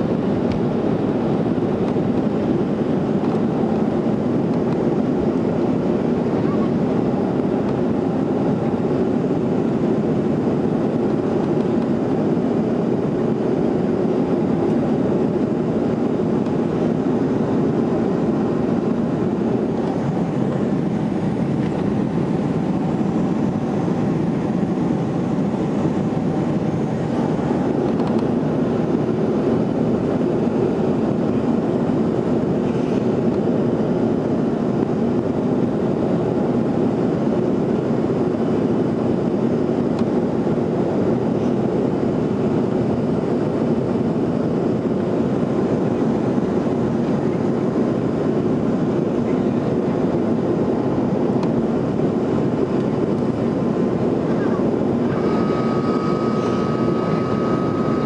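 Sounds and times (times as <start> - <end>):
airplane cabin engine noise: 0.0 - 58.0.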